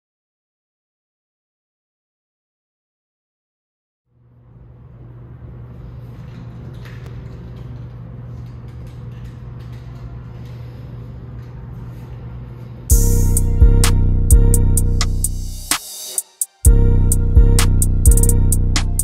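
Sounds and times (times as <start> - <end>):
low hum: 11.0 - 15.8, 16.7 - 19.0.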